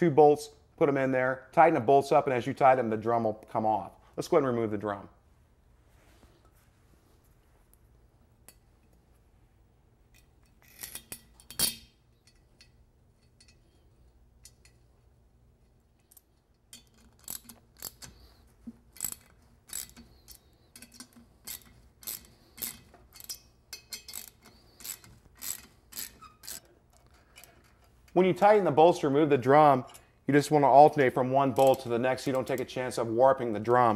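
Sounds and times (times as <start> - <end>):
metallic clinks: 10.1 - 14.9
ratchet wrench clicking: 16.1 - 27.9.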